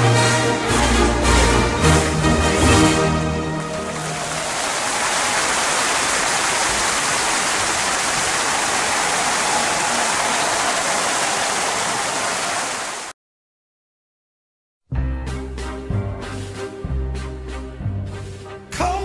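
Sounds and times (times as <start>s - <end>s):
running water rushing: 3.4s - 13.1s.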